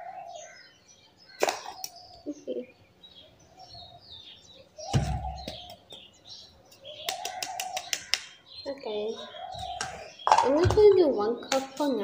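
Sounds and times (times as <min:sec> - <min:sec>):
birds chirping: 0:00.0 - 0:12.0
plastic jar knock: 0:09.8 - 0:11.7.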